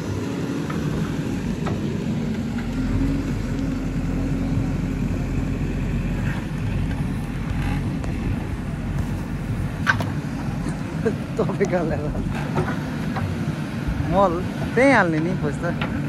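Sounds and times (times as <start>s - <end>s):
diesel engine under load: 0.0s - 16.0s.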